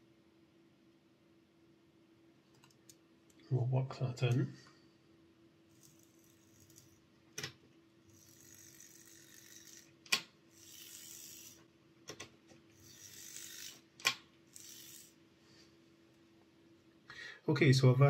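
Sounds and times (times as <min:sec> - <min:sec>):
small motor whirring: 0:05.7 - 0:07.0, 0:08.1 - 0:11.7, 0:12.7 - 0:13.9, 0:14.5 - 0:15.2.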